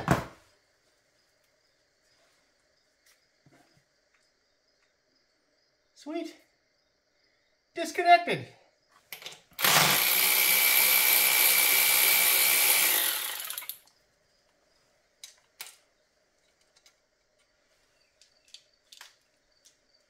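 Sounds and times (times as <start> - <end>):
power ratchet whining: 9.6 - 13.8
faint clicks of parts handled: 15.2 - 19.8.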